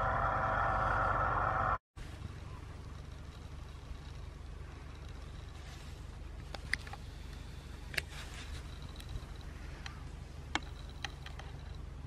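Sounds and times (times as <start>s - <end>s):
small electric motor humming: 0.0s - 1.8s.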